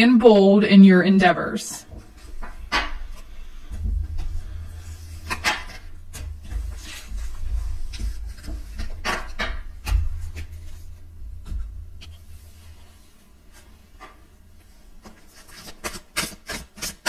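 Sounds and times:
cards being shuffled: 0:15.0 - 0:17.0.

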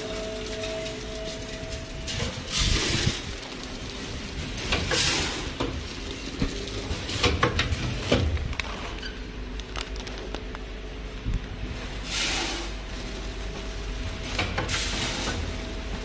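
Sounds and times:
steady machine hum: 0:00.0 - 0:16.0
packing machine hissing bursts: 0:02.1 - 0:08.4, 0:12.0 - 0:13.4, 0:14.1 - 0:15.6
machine clicks and knocks: 0:04.4 - 0:08.7.

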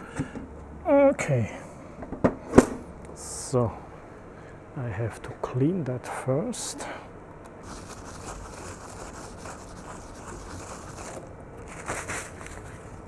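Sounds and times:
paper towel scrubbing metal: 0:07.6 - 0:13.0
paper towel rustling: 0:07.7 - 0:13.0.

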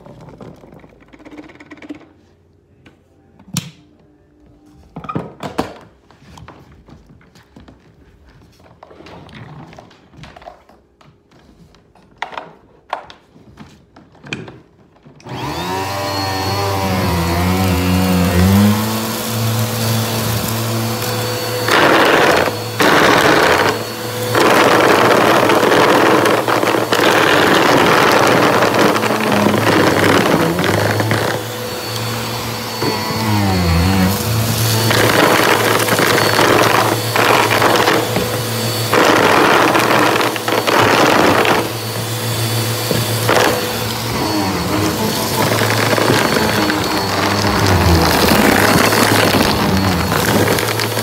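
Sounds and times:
vacuum cleaner motor running: 0:15.2 - 0:51.0
vacuum sucking up debris: 0:15.3 - 0:51.0.

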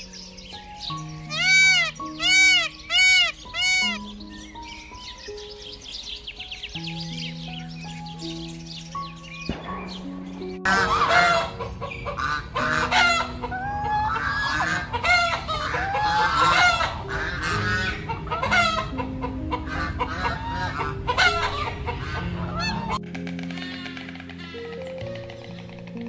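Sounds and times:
soft background music: 0:00.0 - 0:26.0
geese honking: 0:00.9 - 0:04.1, 0:10.6 - 0:26.0
chickens clucking: 0:10.6 - 0:26.0.

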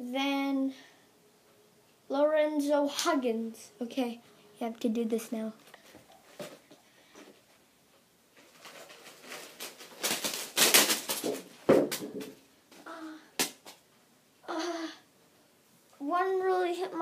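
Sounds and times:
candy canes clattering: 0:08.4 - 0:12.4.

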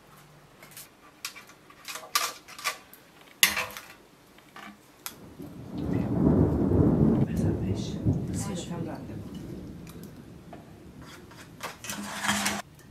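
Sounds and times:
low rumble: 0:05.2 - 0:12.2.

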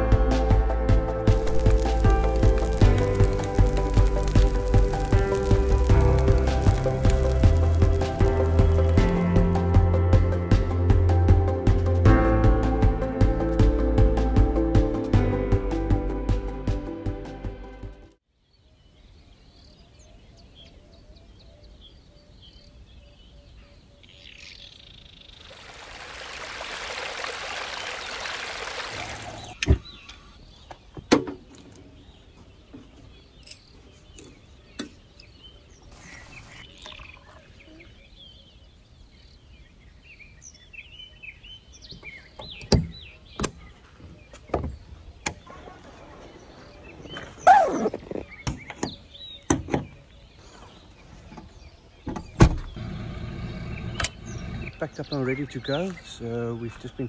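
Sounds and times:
birds chirping faintly: 0:18.3 - 0:57.0.

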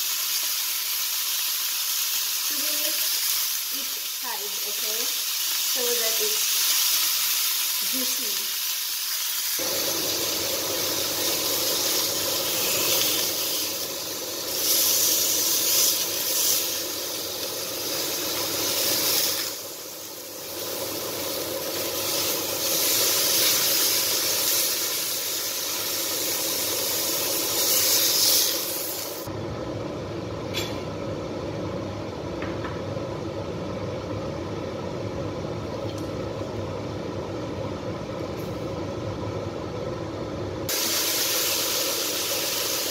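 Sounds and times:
steaks sizzling in a frying pan: 0:00.0 - 0:29.3, 0:40.7 - 0:42.9.

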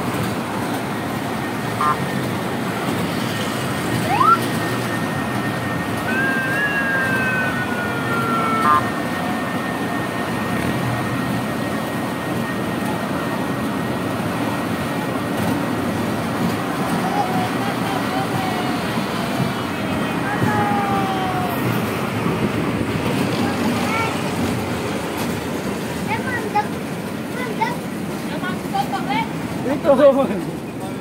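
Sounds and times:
small train running on rails: 0:00.0 - 0:31.0
long high sliding tone: 0:03.1 - 0:10.6
short rising whistle tone: 0:04.0 - 0:04.5.

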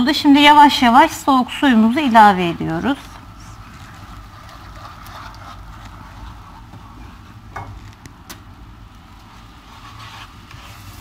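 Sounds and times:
steady low hiss: 0:00.0 - 0:11.0
wooden spoon stirring: 0:01.8 - 0:11.0
water sizzling in hot pan: 0:08.8 - 0:11.0.

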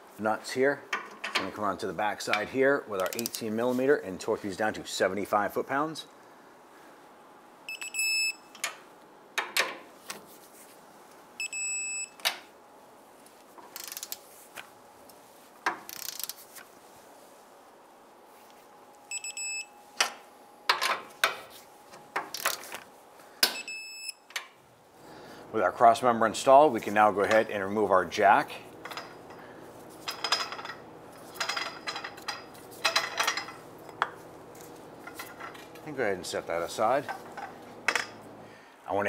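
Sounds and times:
torque wrench high beeps: 0:07.7 - 0:08.5, 0:19.1 - 0:19.7, 0:23.6 - 0:24.2
socket and wrench clanking: 0:28.8 - 0:29.4, 0:30.0 - 0:34.2.

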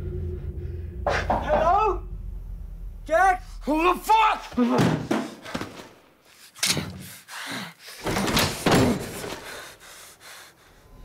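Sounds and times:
door creaking: 0:08.0 - 0:09.5.

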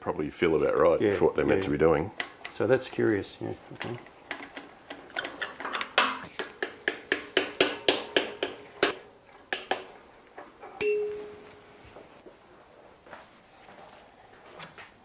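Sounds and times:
metal clink: 0:10.8 - 0:11.8.

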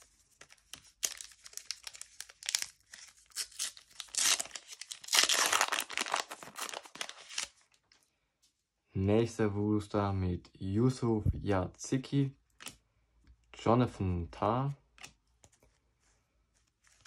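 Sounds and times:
plastic wrapper tearing and crinkling: 0:00.3 - 0:07.8.

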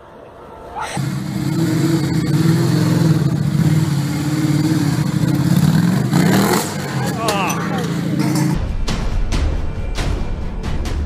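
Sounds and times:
motorcycle engine running: 0:01.0 - 0:08.6.

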